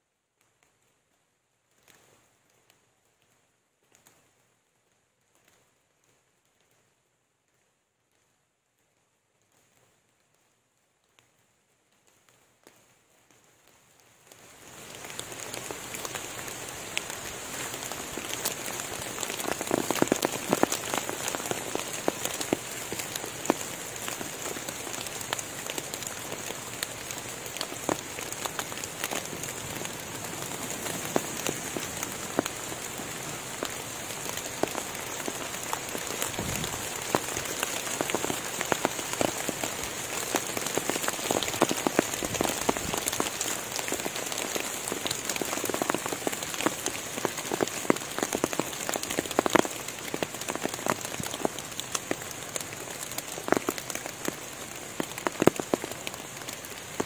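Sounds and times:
rain on foliage: 0:00.1 - 0:57.0
drops falling close by: 0:14.0 - 0:57.0.

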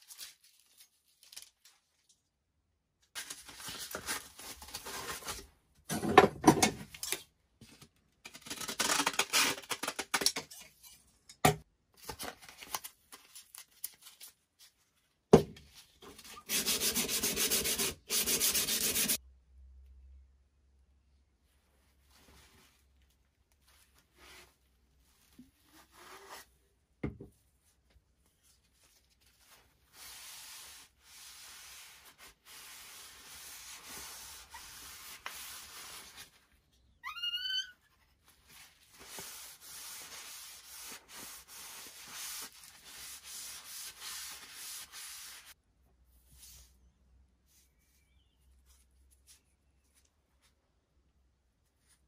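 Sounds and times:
paper towel scrubbing wood: 0:16.5 - 0:19.2.

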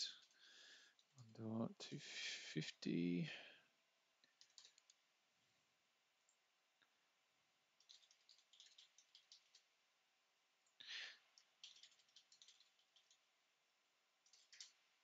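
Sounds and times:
keyboard typing: 0:04.2 - 0:05.0, 0:07.8 - 0:09.7, 0:11.4 - 0:13.3, 0:14.2 - 0:14.8.

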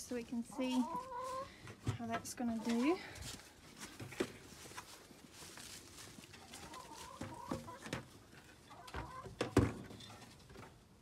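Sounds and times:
poultry calling faintly: 0:00.4 - 0:01.6, 0:06.0 - 0:09.4.

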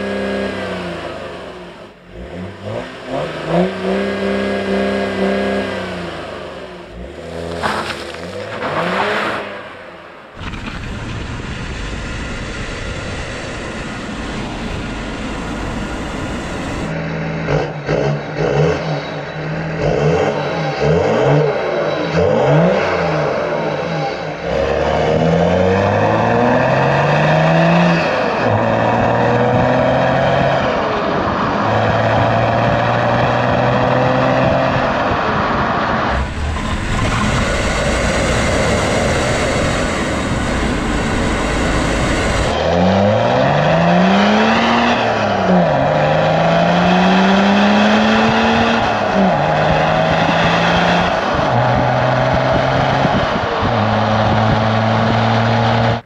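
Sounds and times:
diesel engine revving: 0:00.0 - 0:56.0
loud rushing noise: 0:08.4 - 0:17.0, 0:34.6 - 0:45.3.

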